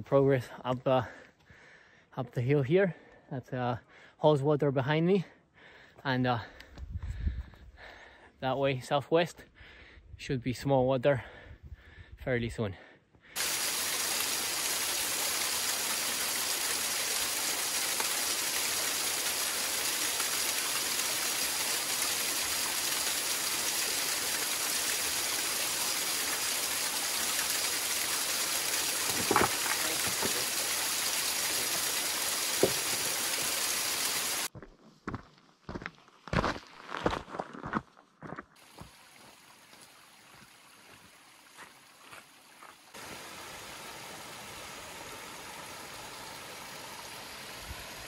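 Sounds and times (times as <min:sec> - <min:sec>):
waterfall splashing on rock: 0:13.4 - 0:34.5, 0:38.6 - 0:48.0.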